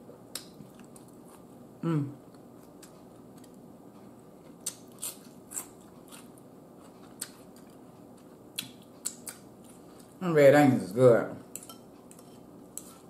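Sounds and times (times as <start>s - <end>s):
wet chewing clicks and smacks: 8.6s - 9.8s.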